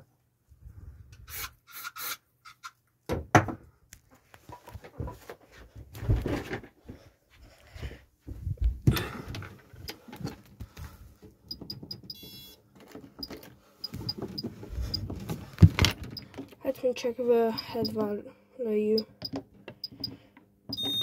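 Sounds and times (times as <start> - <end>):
handling thumps and rustling: 4.4 - 7.1, 12.7 - 16.6
keypad beeps: 11.5 - 12.6, 17.6 - 18.0, 20.7 - 21.0
long beep: 20.8 - 21.0.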